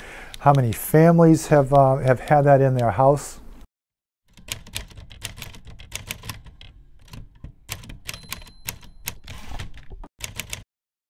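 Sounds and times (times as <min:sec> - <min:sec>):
typewriter key strikes: 0:04.3 - 0:10.6
faint high typewriter bell: 0:08.1 - 0:09.6.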